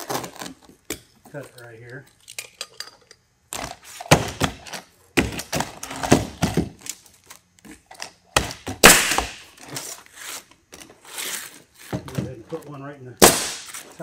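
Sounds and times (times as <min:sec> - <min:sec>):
pneumatic nailer firing nails: 0:03.6 - 0:06.8, 0:08.3 - 0:09.6, 0:13.2 - 0:13.9.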